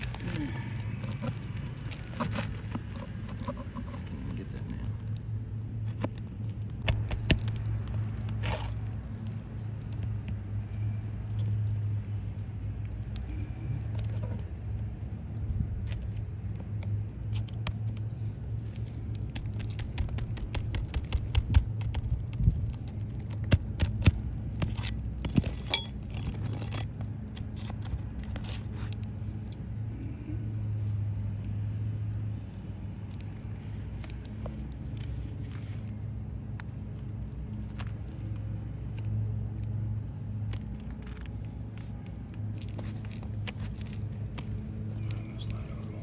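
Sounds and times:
pry bar scraping on shingles: 0:00.0 - 0:04.5, 0:05.8 - 0:09.2, 0:15.9 - 0:29.6
steady low hum: 0:00.0 - 0:46.0.

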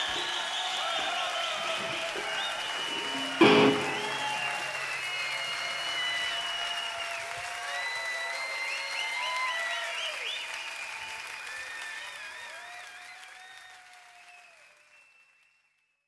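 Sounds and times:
whistle-like calls: 0:00.0 - 0:10.6
crowd applauding: 0:00.0 - 0:15.9.

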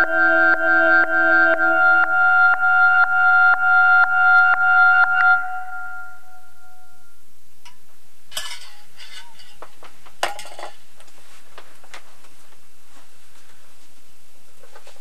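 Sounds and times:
electronic music tone: 0:00.0 - 0:07.2
clattering handling sounds: 0:08.3 - 0:10.8.

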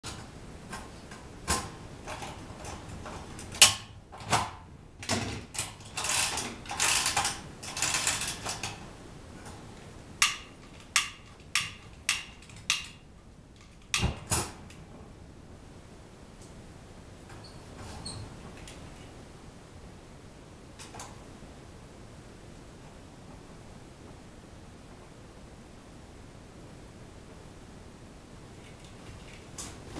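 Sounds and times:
heater clicks: 0:00.1 - 0:14.9.

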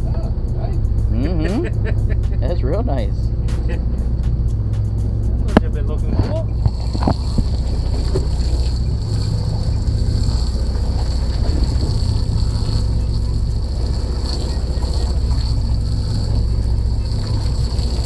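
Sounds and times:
wind rumble on microphone: 0:04.1 - 0:18.0.

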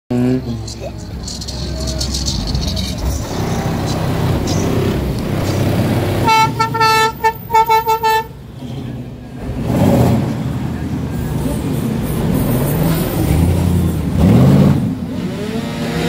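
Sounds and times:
engine rumble of passing vehicles: 0:00.1 - 0:16.0
vehicle horn honking: 0:06.2 - 0:08.4.

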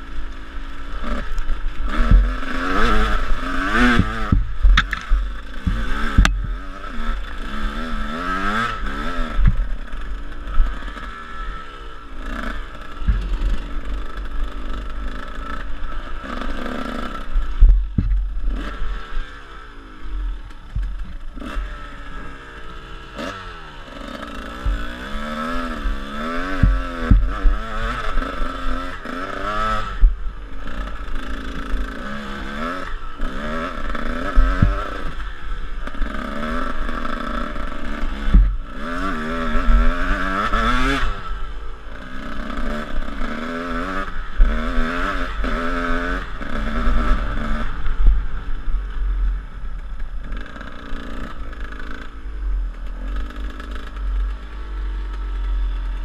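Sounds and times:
dirt bike engine revving: 0:00.0 - 0:56.0
bike knocks and clatter: 0:03.8 - 0:06.6, 0:17.6 - 0:18.6.

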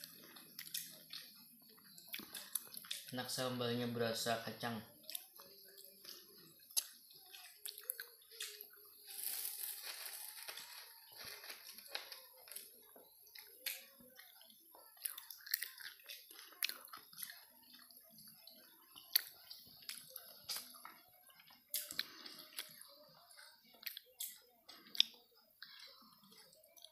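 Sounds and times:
wet chewing and lip-smacking: 0:00.0 - 0:03.1, 0:05.0 - 0:08.8, 0:12.5 - 0:26.9
leaf wrapper rustling: 0:09.0 - 0:12.8.

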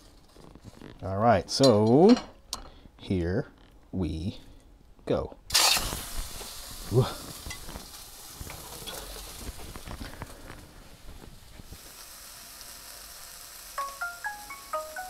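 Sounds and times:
steak sizzling in a pan: 0:05.5 - 0:15.0.

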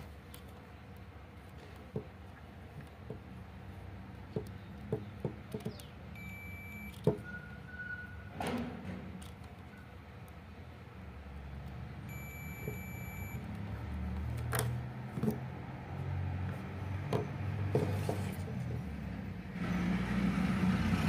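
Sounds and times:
low steady hum: 0:09.2 - 0:14.4.

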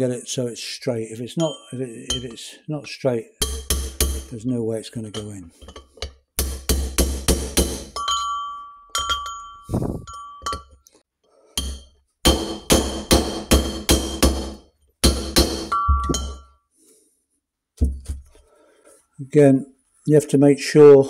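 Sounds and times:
hammer tapping metal bearing: 0:03.4 - 0:04.4, 0:05.1 - 0:08.2, 0:11.6 - 0:16.4.

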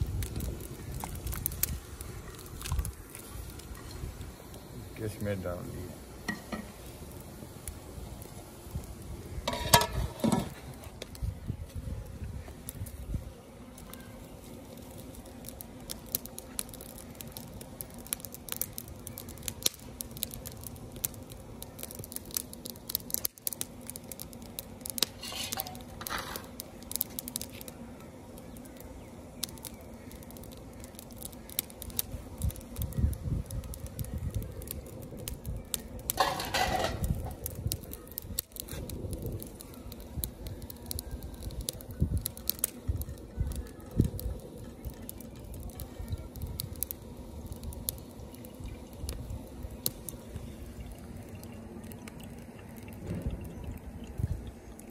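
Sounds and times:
wood fire crackling: 0:00.0 - 0:54.9
low rumbles: 0:42.9 - 0:54.9.

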